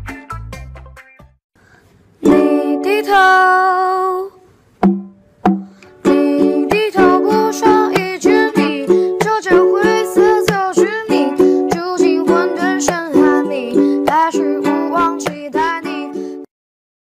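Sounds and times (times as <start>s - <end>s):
ukulele strumming: 2.2s - 4.0s, 4.8s - 16.5s
person singing: 2.2s - 4.4s, 5.9s - 16.5s
bass-heavy beat: 4.8s - 5.8s.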